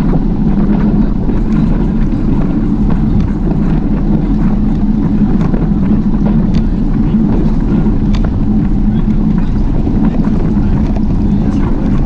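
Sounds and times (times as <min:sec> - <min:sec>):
wind and road rumble: 0:00.0 - 0:12.0.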